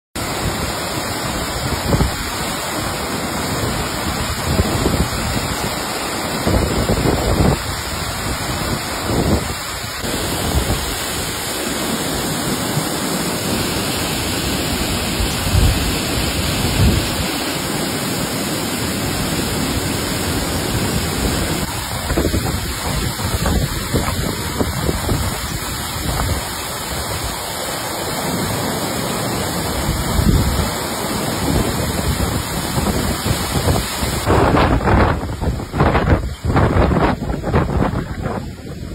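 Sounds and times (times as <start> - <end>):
low rumbling water surges: 0.2 - 38.9
waterfall rushing: 0.2 - 38.9.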